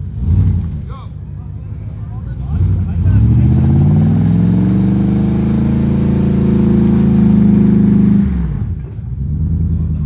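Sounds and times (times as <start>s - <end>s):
suv engine revving hard: 2.5s - 9.9s.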